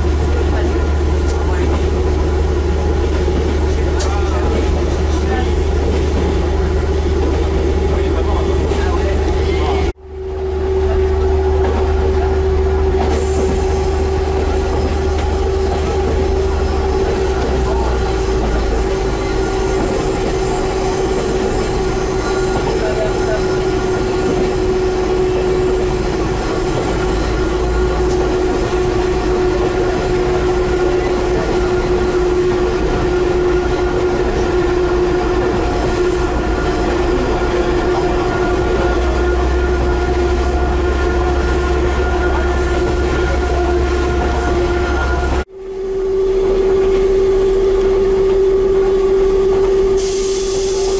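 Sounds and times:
diesel railcar engine hum: 0.0 - 50.9
low train rumble: 0.0 - 50.9.

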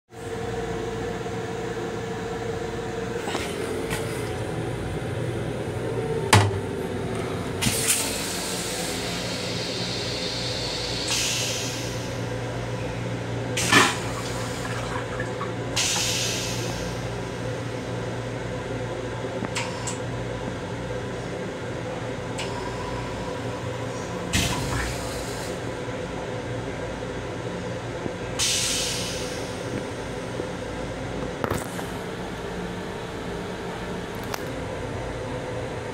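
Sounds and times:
railcar hum: 0.1 - 35.9
toilet flushing water hissing: 7.6 - 12.6, 13.4 - 17.4, 28.4 - 29.7.

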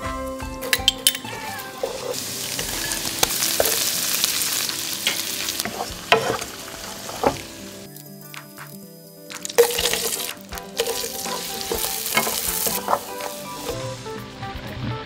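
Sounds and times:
shrimp sizzling in a wok: 0.7 - 14.7
spatula knocking against pan: 5.6 - 6.5.

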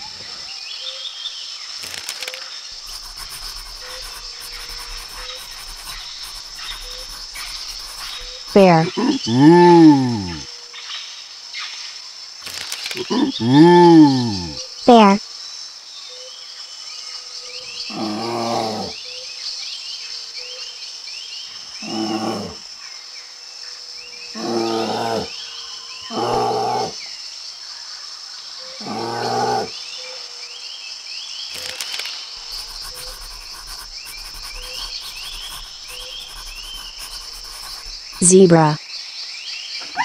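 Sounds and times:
crickets chirping: 0.0 - 40.0
birds chirping: 2.8 - 10.4, 32.4 - 38.8
bear growling: 2.9 - 10.4, 17.9 - 19.0, 21.8 - 22.6, 24.4 - 25.3, 26.1 - 27.0, 28.8 - 29.7.

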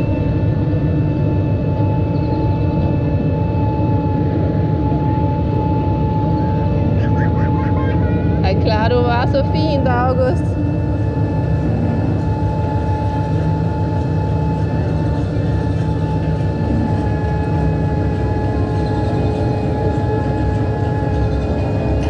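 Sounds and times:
motor whine: 0.0 - 22.0
low rumble of running gear: 8.0 - 22.0.

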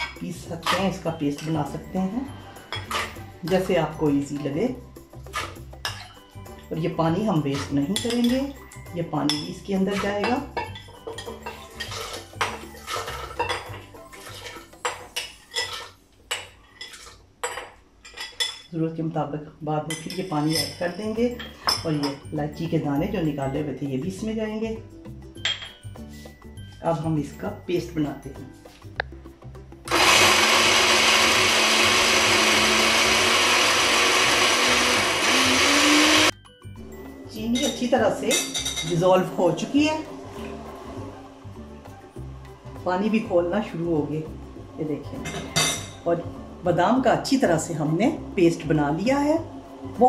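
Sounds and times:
blender motor whining: 29.9 - 36.3.

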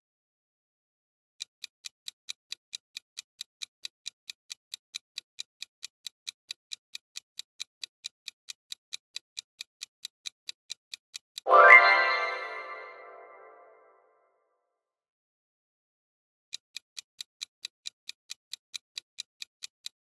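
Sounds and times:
clock-like ticking: 1.4 - 13.7, 16.5 - 20.0
loud bright chime: 11.5 - 13.6.

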